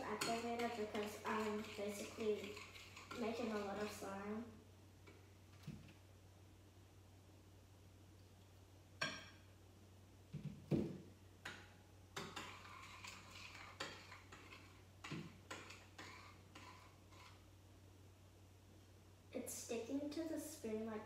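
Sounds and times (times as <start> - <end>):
spoon scraping a bowl: 0.0 - 4.1, 12.2 - 17.4.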